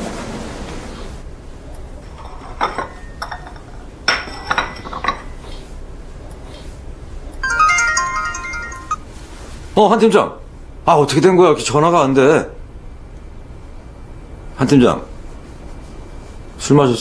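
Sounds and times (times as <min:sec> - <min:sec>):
porcelain cups and saucers clinking: 0:02.0 - 0:05.5.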